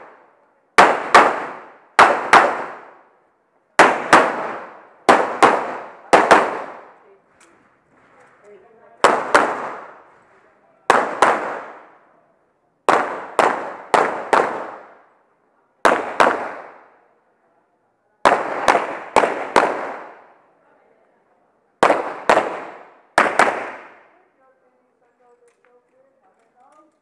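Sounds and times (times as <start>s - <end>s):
pistol shots echoing: 0.8s - 3.1s, 3.8s - 7.0s, 9.0s - 10.1s, 10.9s - 12.0s, 12.9s - 15.1s, 15.8s - 16.9s, 18.2s - 20.4s, 21.8s - 24.1s.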